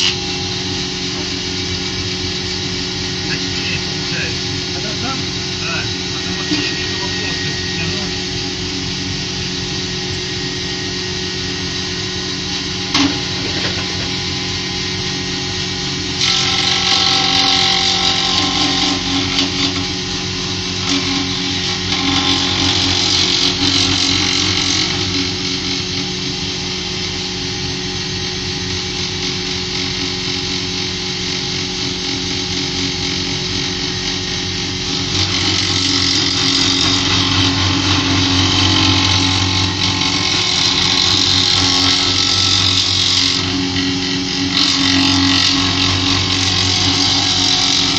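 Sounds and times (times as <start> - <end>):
cutterhead planing board hiss: 0.0 - 15.6
jointer motor hum: 0.0 - 47.9.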